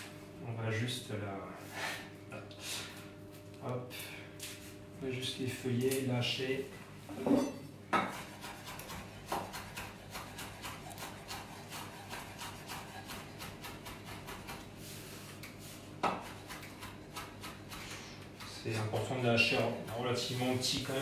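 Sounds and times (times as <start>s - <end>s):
knife chopping on wooden board: 7.2s - 14.6s, 16.0s - 20.1s.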